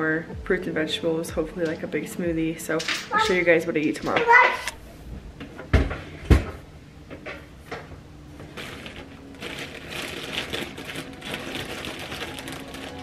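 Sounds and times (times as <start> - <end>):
plastic bag crinkling: 8.4 - 13.0.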